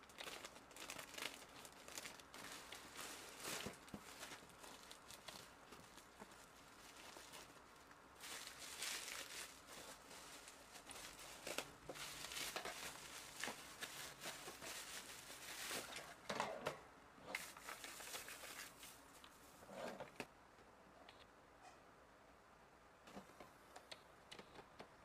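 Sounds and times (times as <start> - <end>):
faint rustling and crinkling: 0.0 - 20.3, 23.0 - 25.0.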